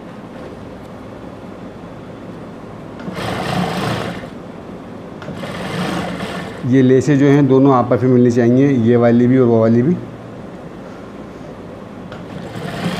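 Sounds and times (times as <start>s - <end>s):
steady low machine noise: 0.0s - 12.9s
sewing machine stitching: 3.0s - 4.4s, 5.2s - 6.7s, 12.2s - 12.9s.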